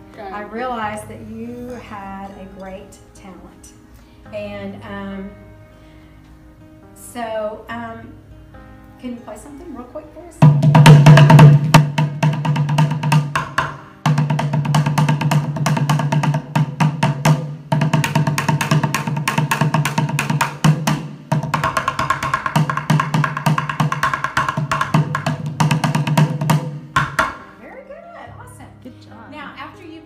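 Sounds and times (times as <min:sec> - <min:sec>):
drumsticks beating plastic bucket: 0:10.4 - 0:27.4.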